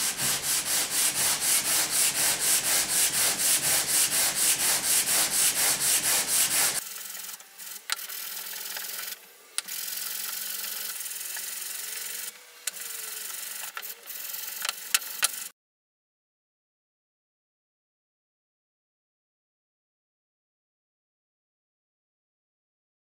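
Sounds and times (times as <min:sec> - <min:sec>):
wood scraping on sandpaper: 0:00.0 - 0:06.8.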